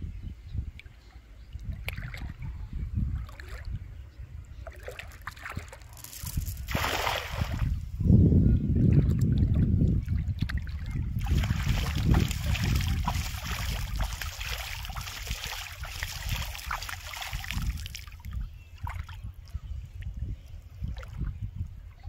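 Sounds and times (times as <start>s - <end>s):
shallow water splashing: 1.7s - 2.4s, 4.6s - 7.8s, 8.9s - 19.2s.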